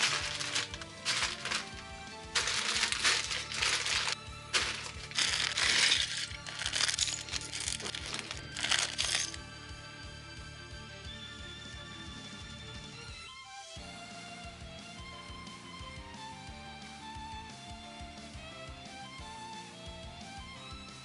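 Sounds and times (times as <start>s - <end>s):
plastic bags crinkling: 0.0s - 9.4s
background music: 0.0s - 21.0s.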